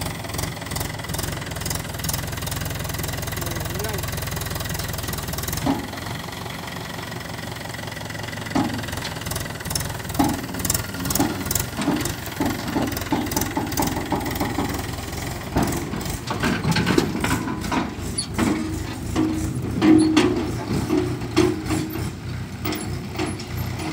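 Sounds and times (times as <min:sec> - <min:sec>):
tractor diesel engine running: 0:00.0 - 0:23.9
metal knocks and clatters: 0:08.4 - 0:23.9.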